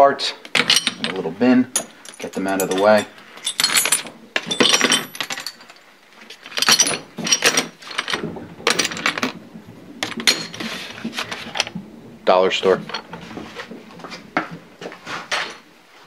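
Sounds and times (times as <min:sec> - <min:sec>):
small metal parts clinking: 0:00.4 - 0:09.4, 0:10.0 - 0:11.7.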